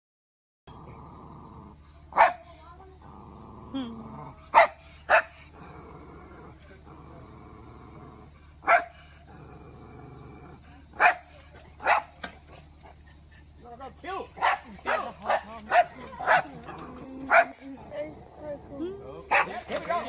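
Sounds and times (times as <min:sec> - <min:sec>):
dog barking: 0:02.1 - 0:02.5, 0:04.5 - 0:05.4, 0:08.6 - 0:09.0, 0:11.0 - 0:12.2, 0:14.4 - 0:17.6, 0:19.3 - 0:19.7.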